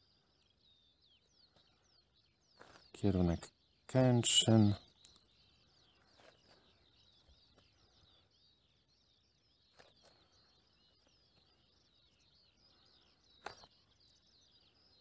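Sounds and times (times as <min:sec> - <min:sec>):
birds chirping and trilling: 0:00.0 - 0:15.0
faint clicks: 0:05.0 - 0:05.3.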